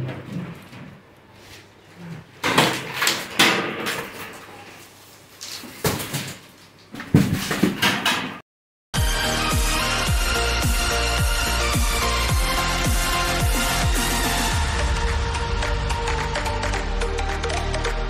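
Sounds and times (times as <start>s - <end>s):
music with a beat: 9.0s - 18.0s.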